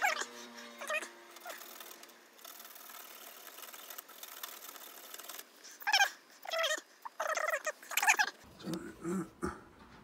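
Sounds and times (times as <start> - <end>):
pet animal whining: 0.0 - 1.6, 5.8 - 8.8.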